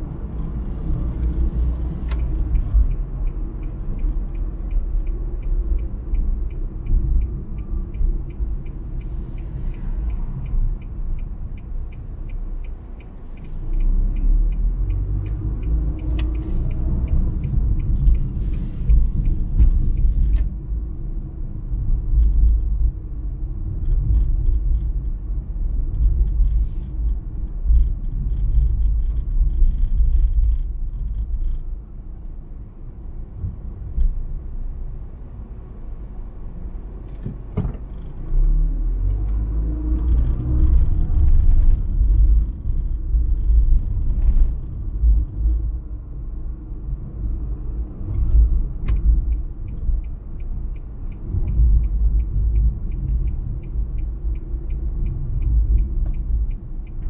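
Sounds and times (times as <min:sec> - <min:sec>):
car road and engine rumble: 0:00.0 - 0:57.0
faint regular ticking: 0:00.5 - 0:21.0, 0:47.2 - 0:57.0.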